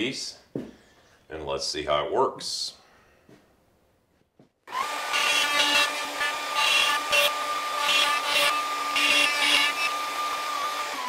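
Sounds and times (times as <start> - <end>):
bit cutting wood: 4.7 - 11.0
router high whine: 4.7 - 11.0.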